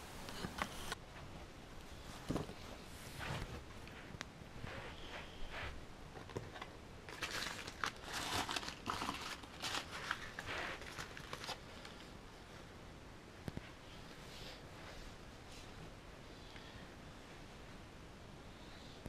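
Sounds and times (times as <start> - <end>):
paper crinkling and rustling: 6.2 - 12.1.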